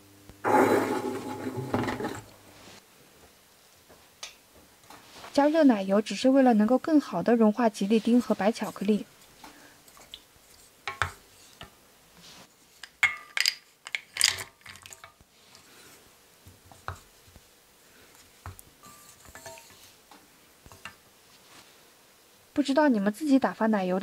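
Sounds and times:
wooden spoon stirring in saucepan: 7.7 - 13.2, 14.6 - 20.1.

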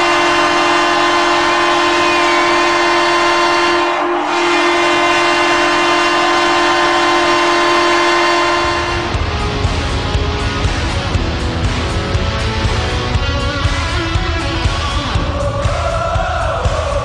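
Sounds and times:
air horn blast: 0.0 - 10.1.

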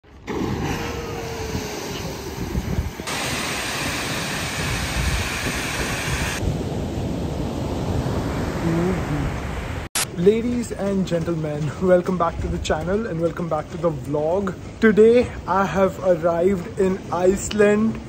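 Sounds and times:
wind: 0.0 - 18.0
surf on a beach: 0.1 - 10.2
waterfall rushing: 0.5 - 6.4.

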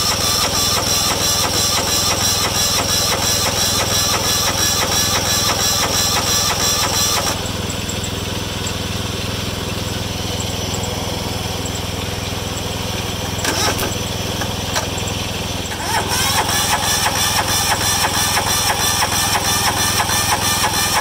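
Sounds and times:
lawn tractor engine running: 0.0 - 21.0
loud rattling clatter: 13.3 - 15.1, 15.7 - 21.0.

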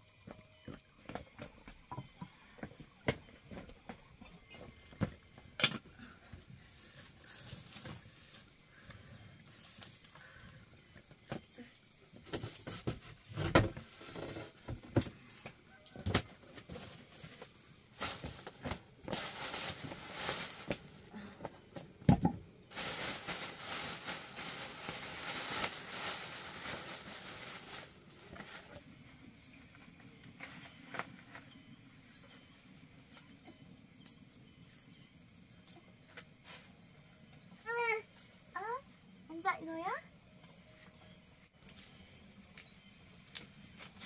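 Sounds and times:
plastic bag rustling: 16.6 - 21.0, 22.7 - 28.8.

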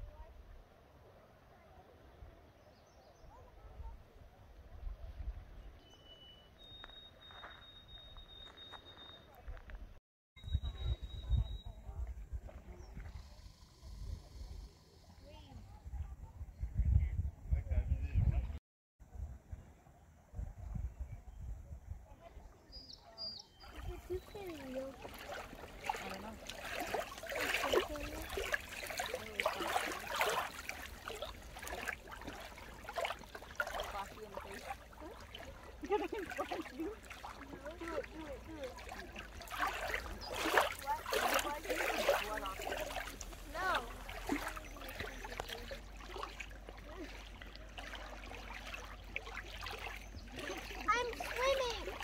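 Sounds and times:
faint distant voices: 19.5 - 51.6
small waves lapping shore: 23.6 - 52.0.

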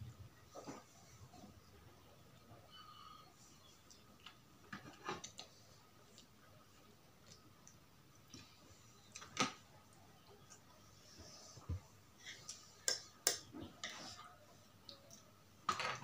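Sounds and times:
soft eating and breathing: 0.0 - 15.6
chopsticks and fork clicking on plate: 12.8 - 13.5.

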